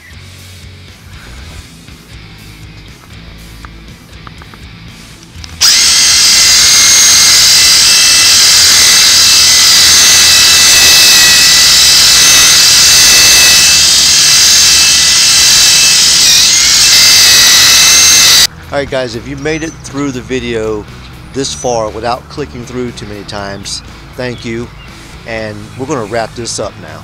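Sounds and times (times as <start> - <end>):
motor high whine: 5.5 - 18.5.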